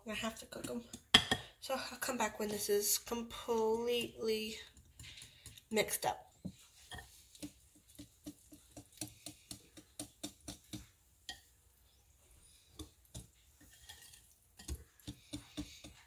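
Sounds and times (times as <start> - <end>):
whisk clicking against ceramic bowl: 4.4 - 5.7, 7.3 - 10.8.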